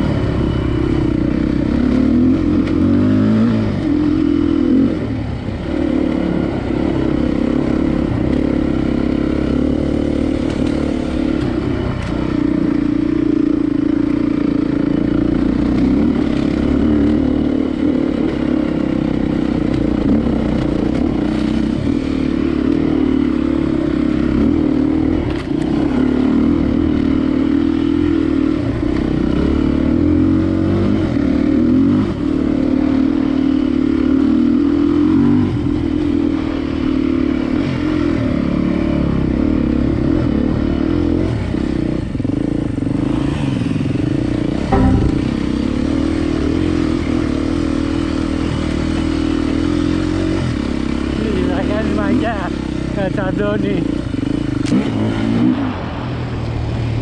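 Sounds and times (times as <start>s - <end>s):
vehicle engine droning: 37.8s - 57.0s.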